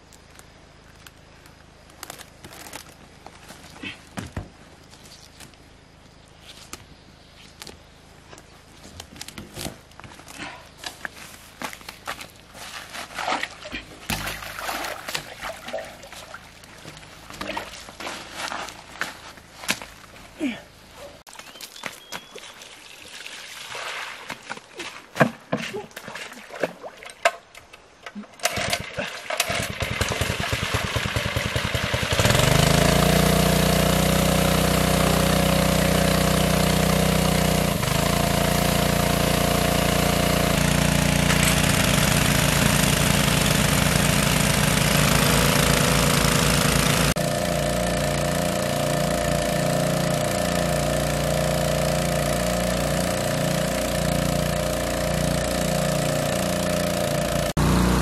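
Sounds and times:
petrol water pump engine: 0:28.4 - 0:58.0.

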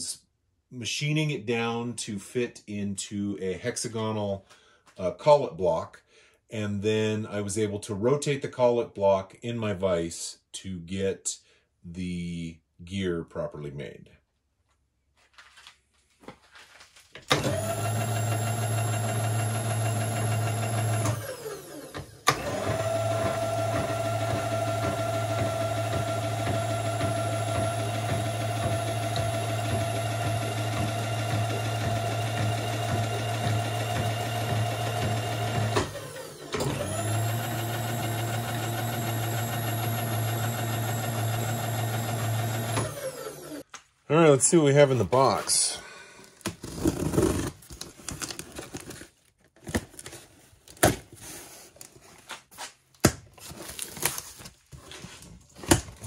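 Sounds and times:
electric motor whine with gear hum: 0:17.4 - 0:43.6.

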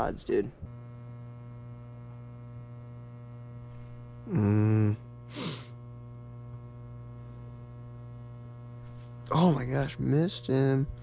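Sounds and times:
buzzy electrical hum: 0:00.0 - 0:11.0
breathy hiss: 0:03.8 - 0:05.8
short pitched vocal sound: 0:04.2 - 0:05.7.

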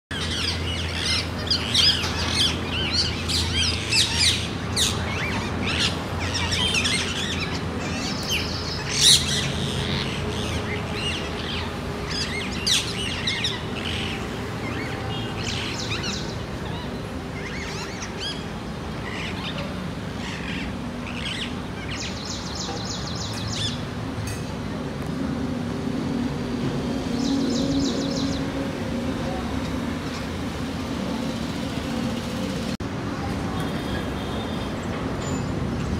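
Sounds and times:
parakeets calling shrilly: 0:00.1 - 0:23.8.

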